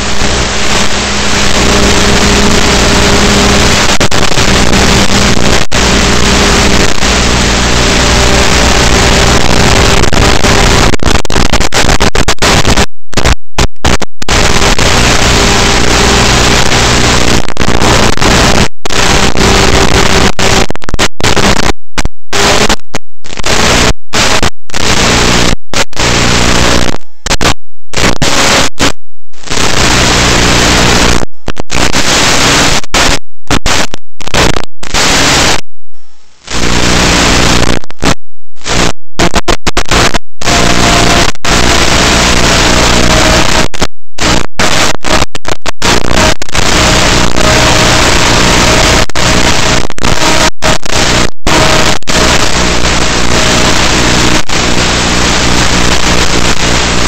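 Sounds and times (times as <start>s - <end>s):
low hum: 0.0s - 11.2s
radio static hiss: 0.0s - 57.0s.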